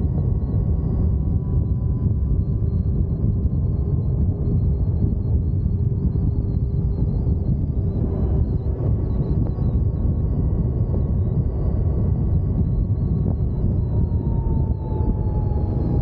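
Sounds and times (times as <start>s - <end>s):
faint steady whine: 0.0s - 16.0s
wind rushing over microphone: 0.0s - 16.0s.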